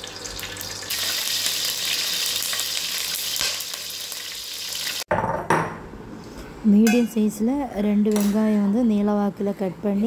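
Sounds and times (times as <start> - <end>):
spices sizzling in hot oil: 0.0 - 5.1.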